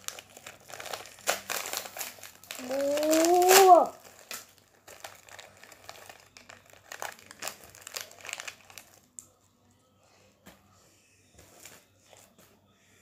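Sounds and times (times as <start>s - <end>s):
packet wrapper crinkling: 0.0s - 9.2s.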